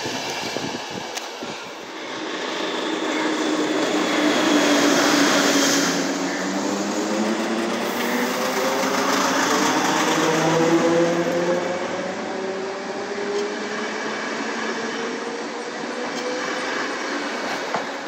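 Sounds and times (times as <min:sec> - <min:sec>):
train rolling rumble: 0:00.0 - 0:18.0
train motors whining: 0:00.8 - 0:18.0.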